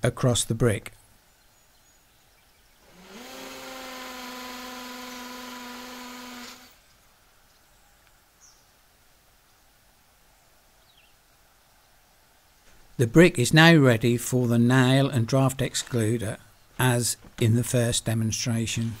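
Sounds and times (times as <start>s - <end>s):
power drill drilling into brick: 2.8s - 6.8s.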